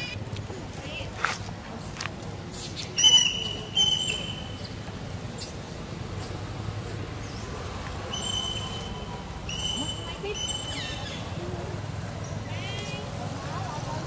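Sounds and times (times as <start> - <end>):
high thin squealing calls: 3.0 - 4.8, 8.1 - 11.4.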